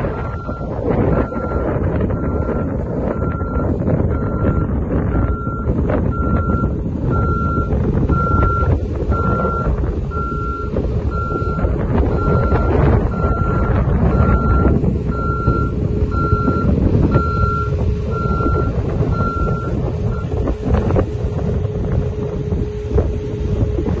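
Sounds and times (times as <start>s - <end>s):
short high alarm beeps: 0.2s - 20.3s.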